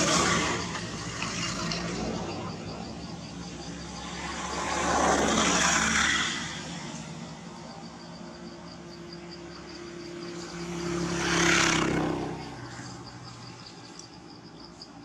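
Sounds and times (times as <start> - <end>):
insect chirping in rapid pulses: 0.0 - 15.0
vehicle engine passing: 9.4 - 13.7.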